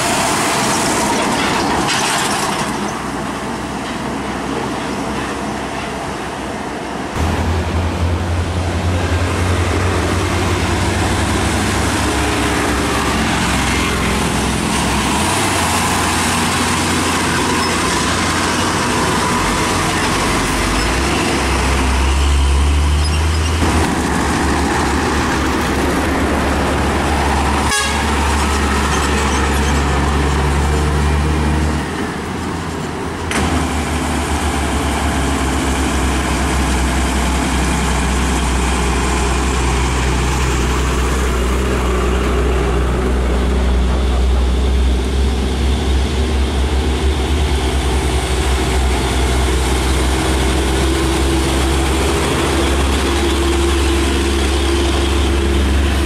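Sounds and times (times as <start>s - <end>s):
diesel trucks passing: 0.0s - 56.0s
truck horns: 26.9s - 31.3s.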